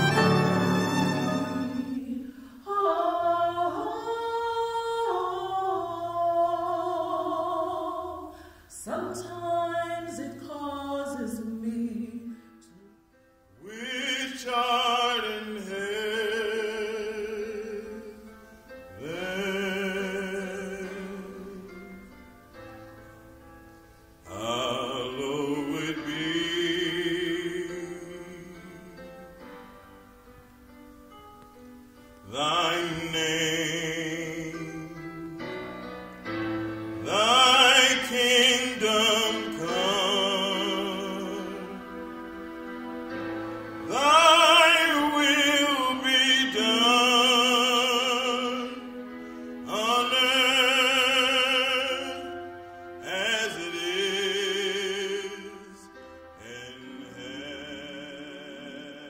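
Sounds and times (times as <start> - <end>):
classical singing with vibrato: 0.0 - 59.0
soft sustained accompaniment: 0.0 - 59.0.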